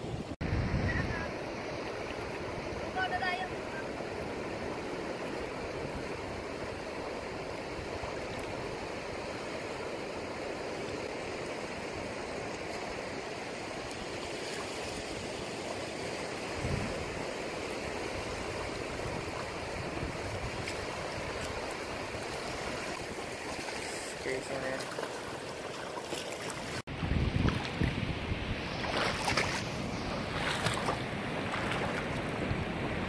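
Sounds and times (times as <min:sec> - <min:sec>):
water moving around rocks: 0:17.4 - 0:28.0, 0:28.6 - 0:32.4
surf breaking: 0:17.8 - 0:33.0.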